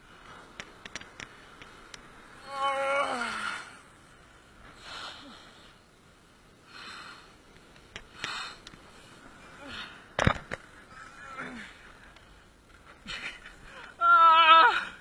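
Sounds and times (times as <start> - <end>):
faint clicks: 0.3 - 2.1, 7.5 - 8.9.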